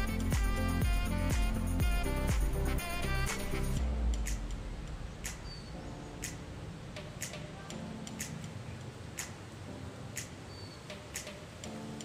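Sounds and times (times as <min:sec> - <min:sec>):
sharp even ticking: 0:03.0 - 0:12.0.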